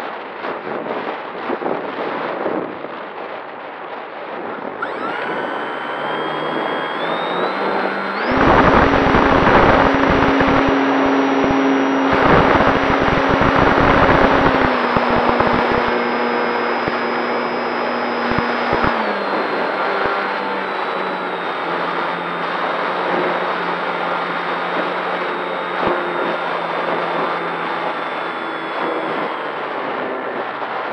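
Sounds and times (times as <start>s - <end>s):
wind buffeting on microphone: 0.1s - 20.1s
electric motor propeller whine: 4.6s - 30.9s.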